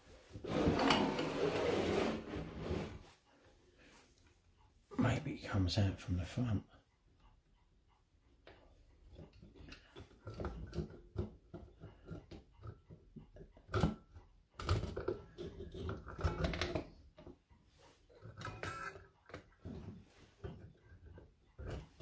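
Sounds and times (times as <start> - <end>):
clock movement clicks and knocks: 7.2 - 22.0.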